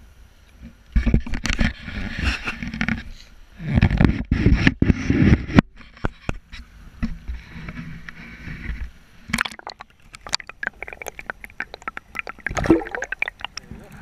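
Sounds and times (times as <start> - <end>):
river water sloshing and splashing: 9.2 - 14.0
sharp splash: 9.3 - 13.8
underwater crackling and gurgling: 9.3 - 14.0.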